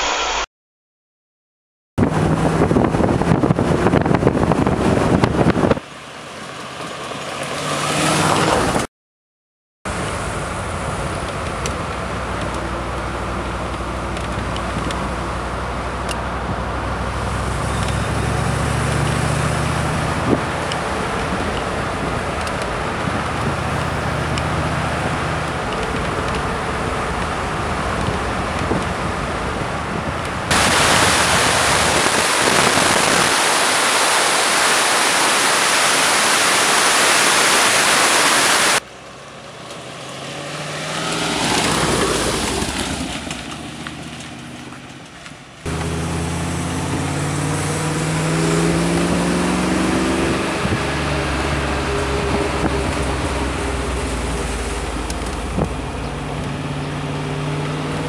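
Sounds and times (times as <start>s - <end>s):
wind noise on microphone: 2.0s - 5.9s, 9.9s - 38.8s, 46.9s - 57.0s
car engine running: 9.9s - 37.0s, 41.2s - 50.8s.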